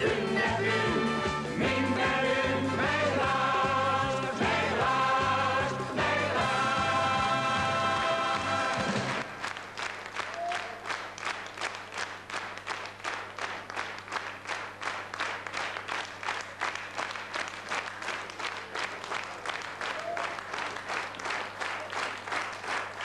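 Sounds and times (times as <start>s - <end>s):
audience clapping in rhythm: 0.0s - 23.0s.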